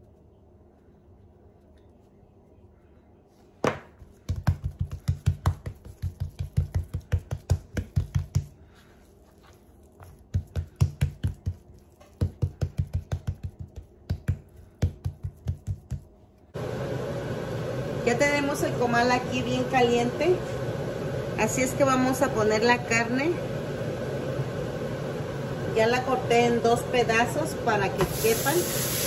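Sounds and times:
hands slapping raw steak: 3.6 - 8.6, 10.0 - 16.2.

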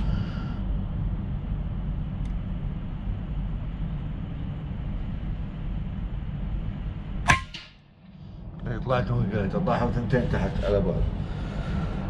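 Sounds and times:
steady low rumble: 0.0 - 12.0
air rifle shot: 7.3 - 7.8.

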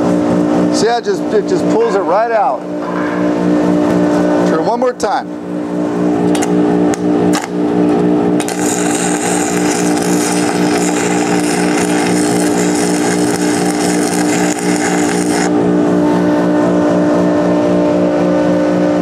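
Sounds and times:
fume extractor hum: 0.0 - 19.0
welding arc crackling and hissing: 8.4 - 15.5.

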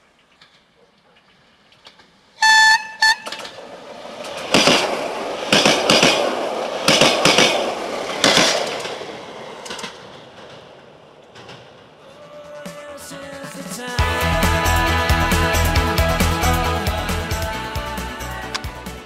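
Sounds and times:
train horn blasts: 2.4 - 3.5
train rumble: 2.4 - 19.0
train wheels clacking over rail joints: 3.1 - 13.7.

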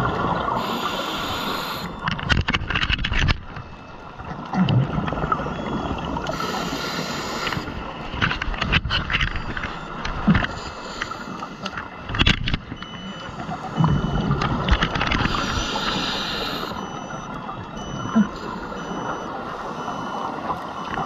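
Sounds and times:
regulator breathing hiss: 0.6 - 2.0, 6.3 - 7.8, 15.3 - 16.8
faint high electronic beep: 12.8 - 21.0.

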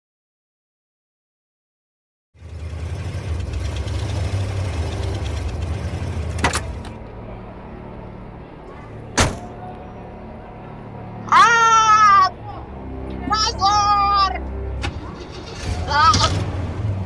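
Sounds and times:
car engine idling: 2.4 - 7.4
car door slam: 9.2 - 9.5.

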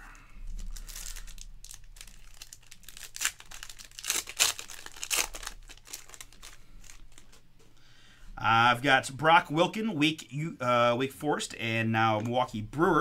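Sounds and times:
foil wrapper tearing and crinkling: 0.4 - 7.4.

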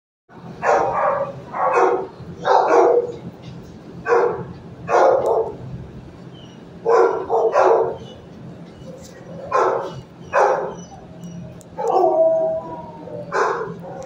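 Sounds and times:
dog barking: 0.6 - 3.2, 4.0 - 5.6, 6.8 - 8.0, 9.4 - 10.9, 11.8 - 12.3, 13.3 - 14.0.

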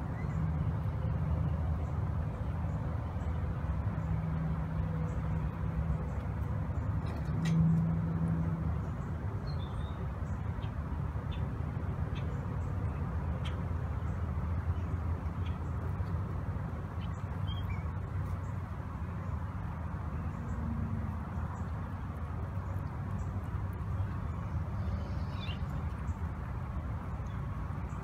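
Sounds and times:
low outdoor rumble: 0.0 - 28.0
faint high chirping calls: 24.8 - 26.2.

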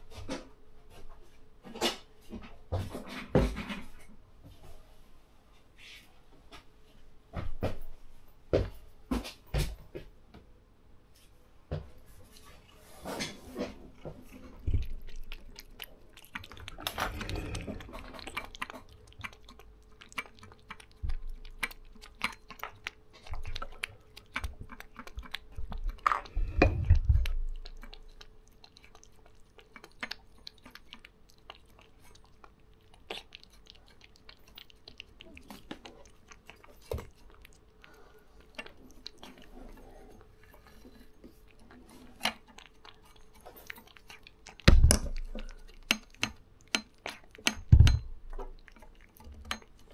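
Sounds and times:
cat licking and chewing: 12.0 - 49.9.

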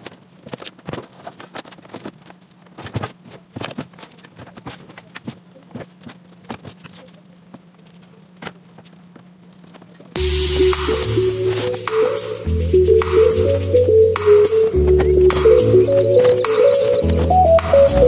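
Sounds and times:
clicks and knocks of plastic handling: 0.0 - 10.2.

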